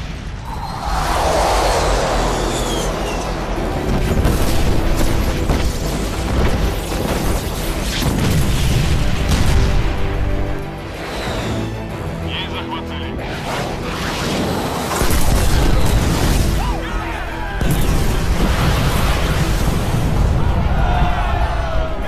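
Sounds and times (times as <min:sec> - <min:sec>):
low rumble: 0:00.0 - 0:05.9
explosions and booms: 0:00.0 - 0:10.7, 0:14.1 - 0:16.6, 0:17.4 - 0:22.0
film score music: 0:00.0 - 0:22.0.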